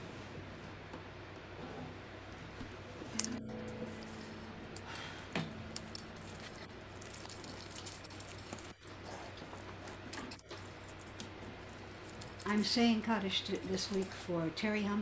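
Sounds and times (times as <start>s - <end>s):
microphone hiss: 0.0s - 15.0s
low hum: 1.8s - 14.6s
faint clicks and rustles: 5.7s - 14.9s.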